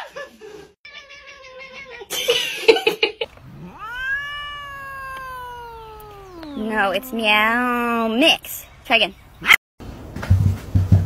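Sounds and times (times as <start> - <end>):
cat meowing: 3.3 - 8.2.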